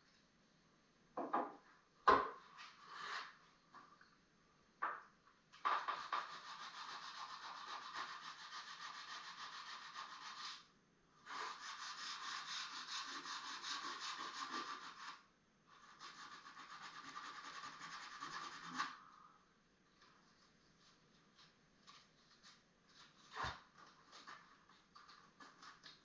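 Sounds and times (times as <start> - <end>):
hand sanding wood: 6.0 - 10.6, 11.3 - 15.2, 15.8 - 19.0.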